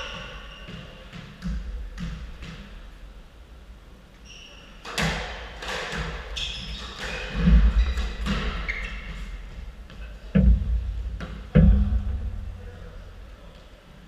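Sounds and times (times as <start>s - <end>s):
shoes squeaking on floor: 0.0s - 1.4s, 4.2s - 5.0s, 6.0s - 10.3s.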